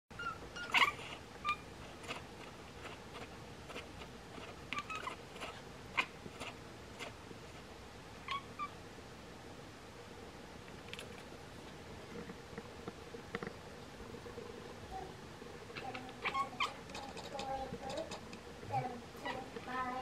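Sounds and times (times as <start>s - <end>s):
cat chattering chirps: 0.2s - 2.3s, 3.2s - 7.2s, 8.2s - 8.8s, 15.8s - 17.5s.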